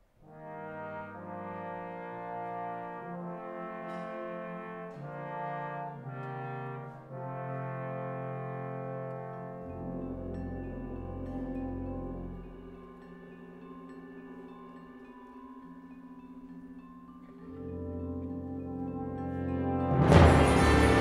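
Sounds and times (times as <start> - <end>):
brass band playing chords: 0.3 - 12.8, 17.6 - 21.0.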